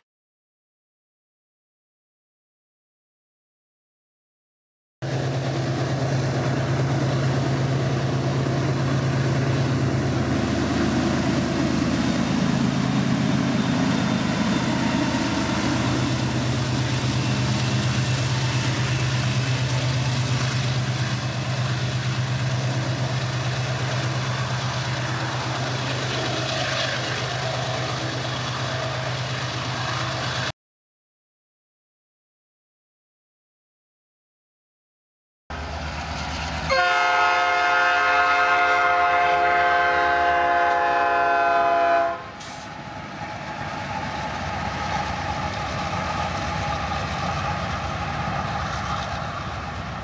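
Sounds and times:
diesel locomotives passing: 5.0 - 30.5, 35.5 - 50.0.

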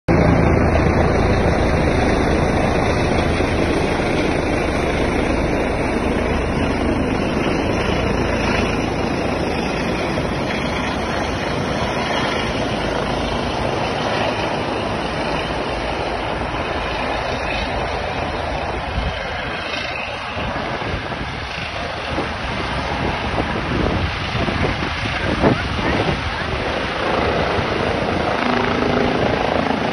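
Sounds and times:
helicopter rotor and turbine: 0.1 - 29.9.

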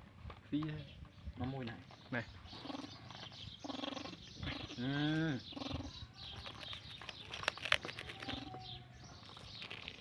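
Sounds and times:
faint bird chirps: 0.8 - 10.0.

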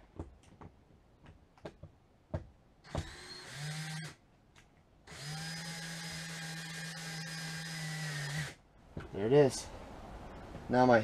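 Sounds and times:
cordless drill motor running: 3.0 - 4.1, 5.1 - 8.6.

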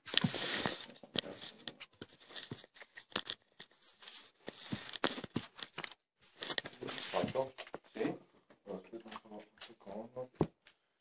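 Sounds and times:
fabric rustling on microphone: 3.7 - 8.1.

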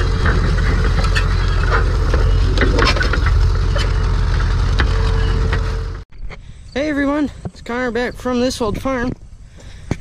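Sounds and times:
steady whine: 0.0 - 6.1
tractor engine running: 0.0 - 6.1.

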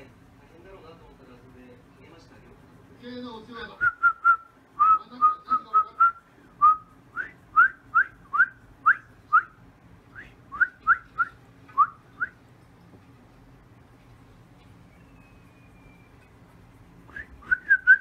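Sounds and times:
person whistling: 6.0 - 9.5, 17.1 - 18.0.

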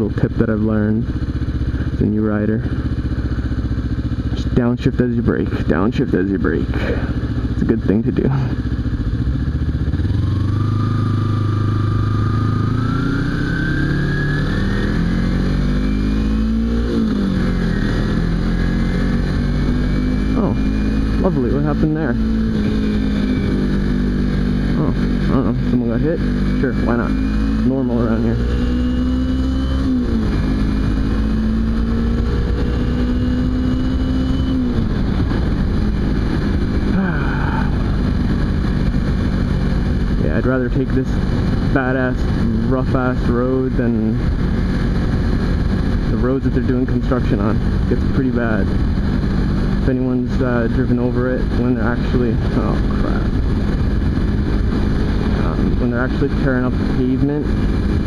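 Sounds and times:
motorcycle engine accelerating: 0.0 - 58.0
wind rush on microphone: 33.7 - 40.3, 51.4 - 58.0.

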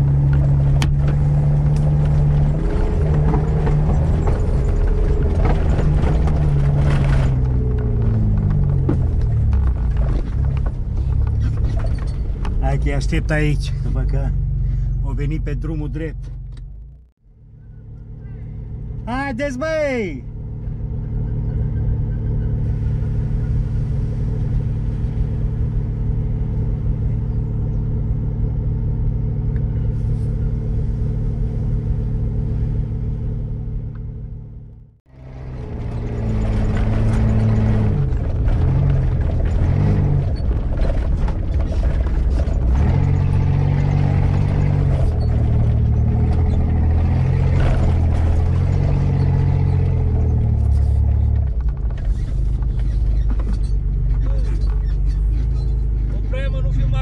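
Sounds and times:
vehicle clattering: 0.0 - 17.1, 29.5 - 57.0
vehicle engine running: 0.0 - 57.0.

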